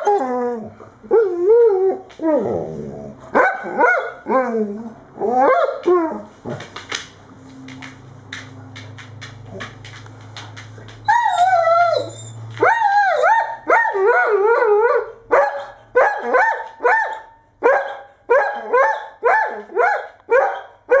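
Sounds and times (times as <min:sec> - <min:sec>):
dog barking: 0:03.3 - 0:04.3, 0:13.3 - 0:14.3, 0:14.9 - 0:21.0
dog howling: 0:11.0 - 0:15.1.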